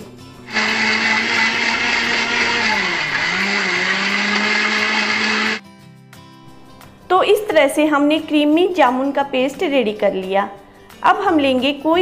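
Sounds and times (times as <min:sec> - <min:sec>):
mixer grinder motor whining: 0:00.5 - 0:05.6.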